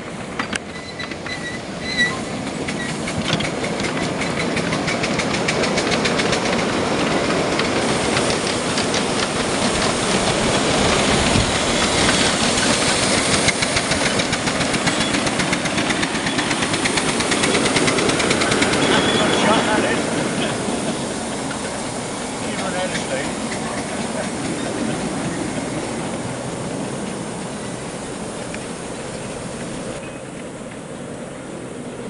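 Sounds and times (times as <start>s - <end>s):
steam hiss: 0.0s - 32.0s
locomotive exhaust beat: 0.1s - 30.9s
wheel clicks over rails: 2.4s - 19.7s.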